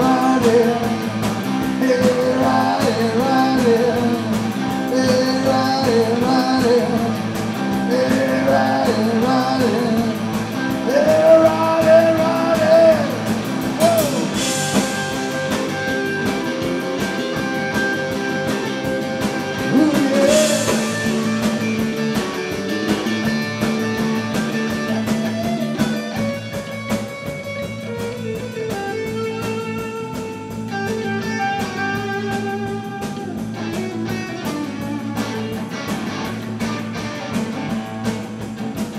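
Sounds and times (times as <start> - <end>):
person singing: 0.0 - 1.1, 1.7 - 7.2, 7.9 - 10.2, 10.8 - 14.4, 19.6 - 21.2
bass guitar: 0.0 - 38.9
drum kit: 0.0 - 38.9
electric guitar: 0.0 - 38.9.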